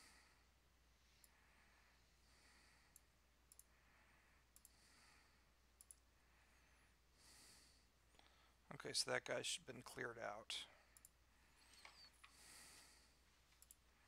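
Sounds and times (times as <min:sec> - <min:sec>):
soft breathing: 0:00.0 - 0:08.7, 0:10.6 - 0:14.0
faint computer mouse clicks: 0:02.9 - 0:03.7, 0:04.6 - 0:04.8, 0:05.8 - 0:06.0, 0:13.5 - 0:13.8.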